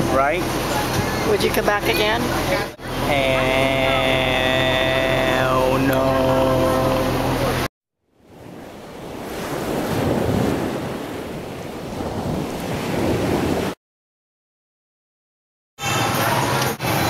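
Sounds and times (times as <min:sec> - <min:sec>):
sea water splashing against boat: 0:00.0 - 0:13.8
wind buffeting microphone: 0:08.3 - 0:13.8.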